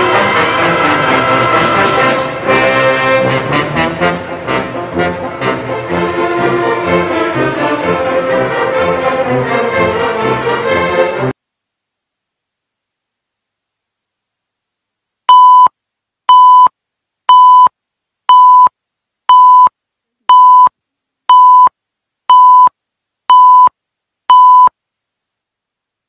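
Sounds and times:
short loud beeps: 15.3s - 15.7s, 16.3s - 16.7s, 17.3s - 17.7s, 18.3s - 18.7s, 19.3s - 19.7s, 20.3s - 20.7s, 21.3s - 21.7s, 22.3s - 22.7s, 23.3s - 23.7s, 24.3s - 24.7s.

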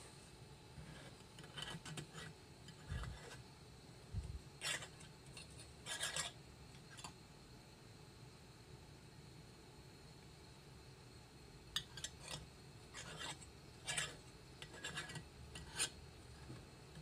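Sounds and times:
metal collar scraping on glass threads: 4.6s - 6.4s, 13.0s - 16.0s.

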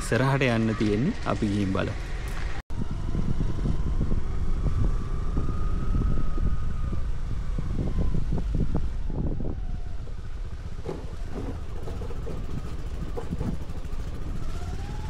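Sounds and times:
engine and road rumble: 0.0s - 15.0s
knocks from rough ride: 10.7s - 15.0s.

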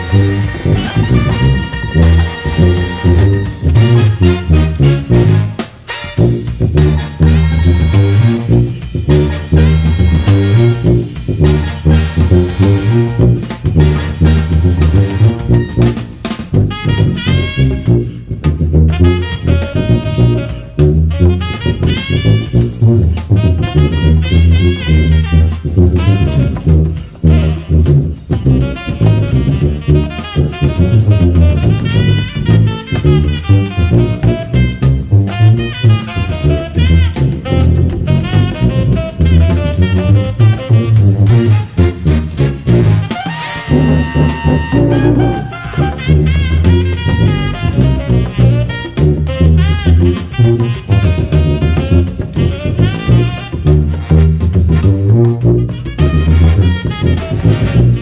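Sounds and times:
big-band backing track: 0.0s - 58.0s
brass stabs: 0.0s - 58.0s
drums: 0.0s - 58.0s
sousaphone funk bass line: 0.0s - 58.0s.

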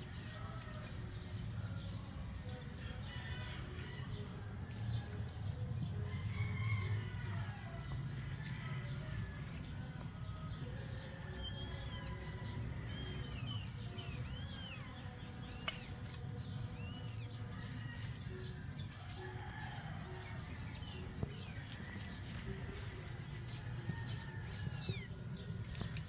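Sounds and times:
kittens mewing: 14.1s - 14.9s, 16.7s - 17.3s.

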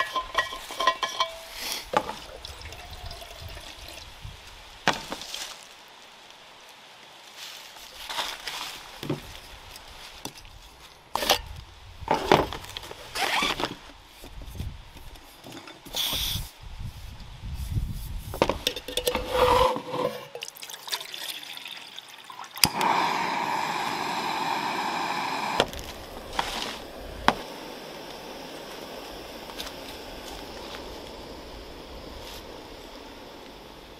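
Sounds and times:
gas burner hissing: 0.0s - 2.0s, 15.8s - 17.1s, 17.8s - 20.3s, 22.6s - 33.9s
camping stove parts clattering: 0.0s - 2.2s, 15.4s - 16.2s, 18.4s - 20.5s
water pouring: 0.3s - 4.2s, 19.0s - 22.9s.

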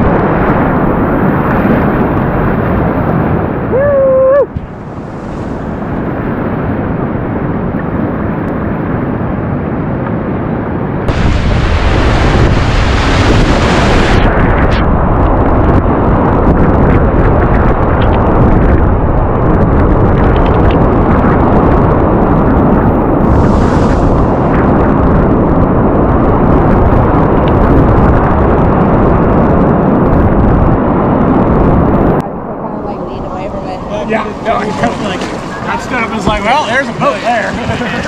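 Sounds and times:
water splashing on microphone: 23.2s - 25.6s, 33.4s - 38.0s
whitewater rapids rushing: 33.6s - 38.0s.

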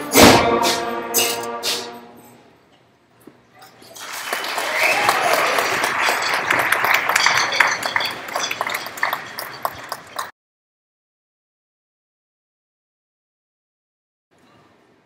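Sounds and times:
audience clapping: 3.9s - 10.3s.

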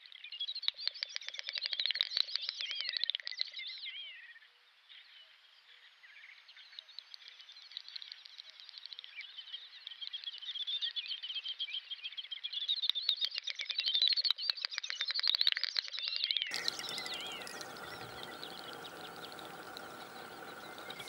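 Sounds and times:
small birds singing: 16.0s - 21.0s.

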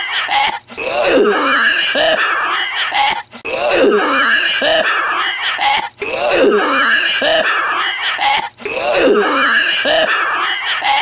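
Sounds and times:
man's hacking cough: 0.0s - 11.0s.

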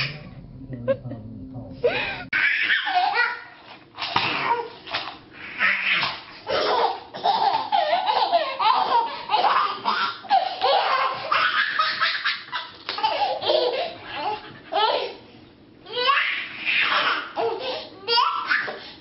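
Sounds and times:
toddler giggling: 6.5s - 15.2s.

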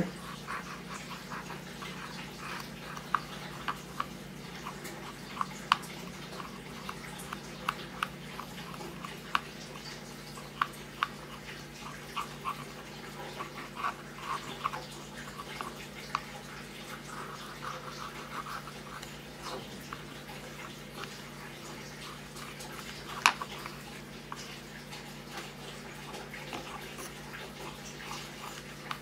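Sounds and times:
faint steady hum: 0.0s - 29.0s
swab scratchy rubbing: 16.9s - 20.1s.

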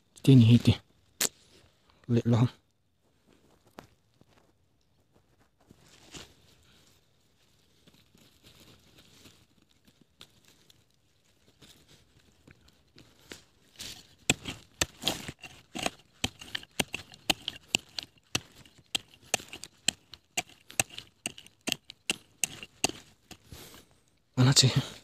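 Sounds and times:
sharp snaps and tearing: 1.2s - 1.4s.

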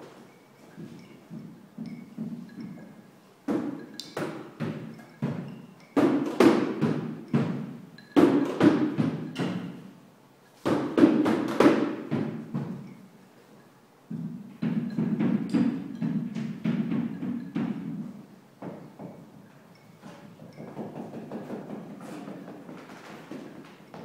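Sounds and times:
mallet striking hard surface: 0.8s - 9.9s, 14.1s - 19.2s.

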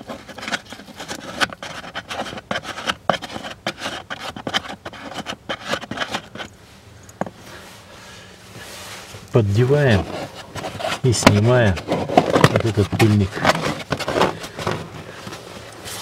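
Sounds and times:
fingers rubbing on plastic and felt: 0.0s - 6.5s, 9.7s - 15.4s.

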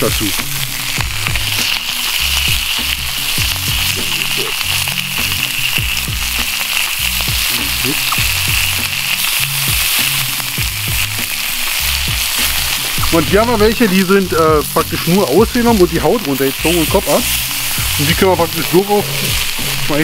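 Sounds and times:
fish sizzling on hot griddle: 0.0s - 20.0s.

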